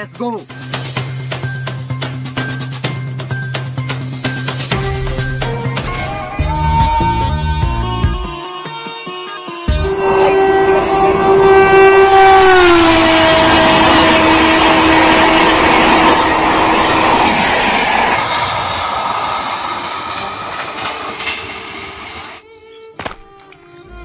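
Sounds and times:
train horn: 9.7 - 18.6
train coaches clattering on rails: 15.7 - 22.4.

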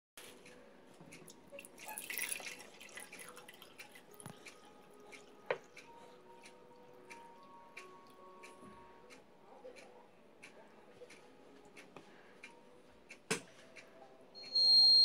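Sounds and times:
water pouring into a glass jar: 1.3 - 5.7.

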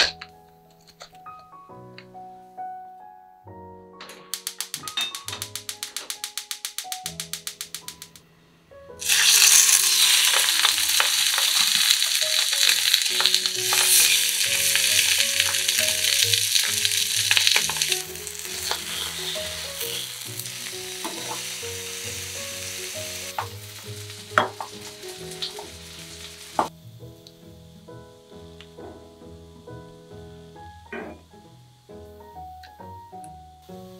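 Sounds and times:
sharp clicks: 4.2 - 8.2
fish sizzling in hot oil: 4.4 - 8.2, 9.0 - 29.4.

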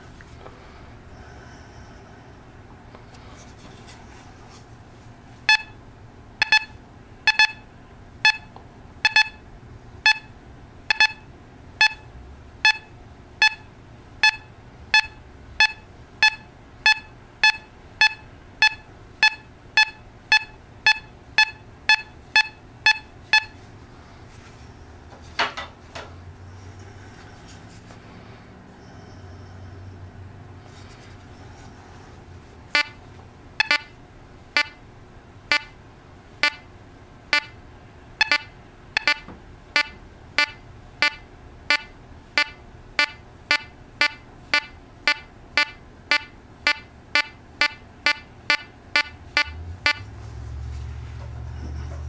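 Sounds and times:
metal detector beeping: 5.5 - 5.8, 6.4 - 7.6, 8.3 - 9.4, 10.1 - 10.3, 10.9 - 12.1, 12.7 - 23.6, 32.8 - 33.0, 33.6 - 33.9, 34.6 - 34.8, 35.5 - 35.7, 36.4 - 36.7, 37.4 - 37.6, 38.2 - 50.1.

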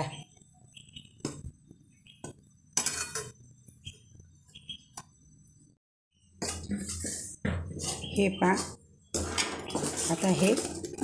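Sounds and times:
metal spatula scraping pan: 6.7 - 11.0.

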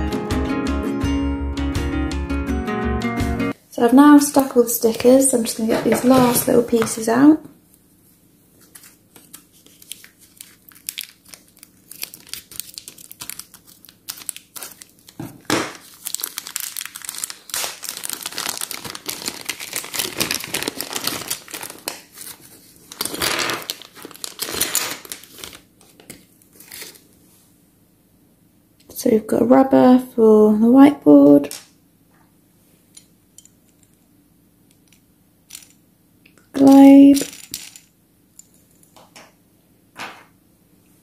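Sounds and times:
plastic bag crinkling: 8.7 - 25.7.

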